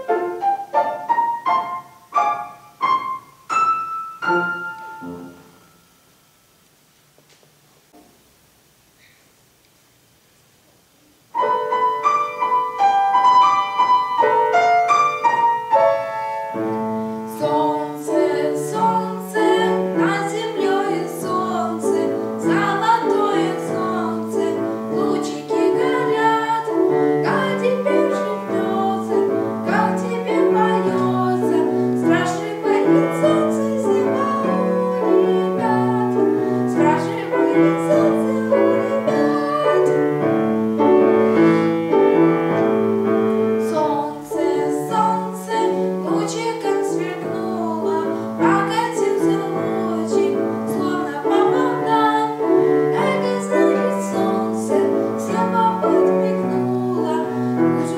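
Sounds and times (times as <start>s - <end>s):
grand piano melody: 0.0s - 6.7s, 11.2s - 57.9s
piano bass line: 11.4s - 57.9s.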